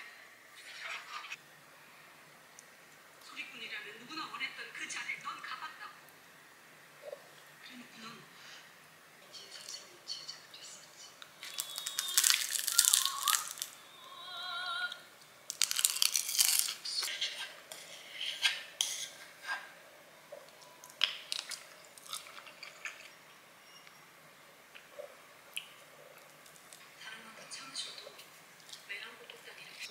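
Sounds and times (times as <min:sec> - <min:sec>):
chopsticks scraping in a bowl: 0:16.1 - 0:19.3.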